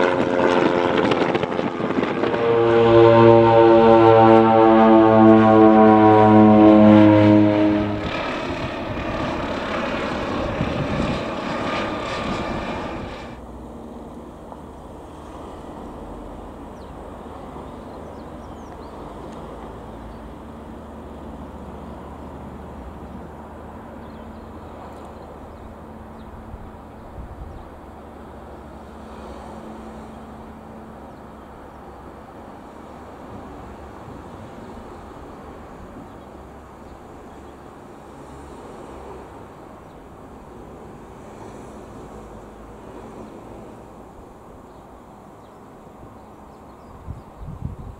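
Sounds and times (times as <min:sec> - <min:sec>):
light aircraft engine droning: 0:00.0 - 0:47.9.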